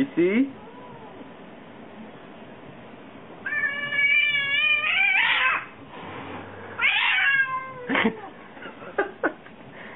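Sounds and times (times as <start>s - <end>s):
cat yowling: 0.6s - 1.3s, 3.4s - 5.8s, 6.8s - 8.2s.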